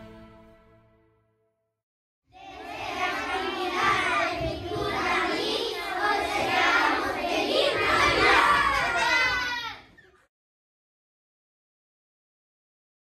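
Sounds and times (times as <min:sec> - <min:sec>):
crowd of children's voices: 0:02.3 - 0:10.3.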